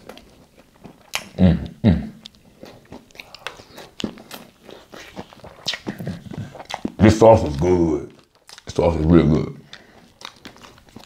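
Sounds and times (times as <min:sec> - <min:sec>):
chewing and biting food: 0:00.0 - 0:01.4, 0:02.2 - 0:11.0
wet mouth clicks and smacks: 0:00.1 - 0:07.0, 0:08.1 - 0:08.8, 0:09.6 - 0:11.0
person humming: 0:01.4 - 0:02.2.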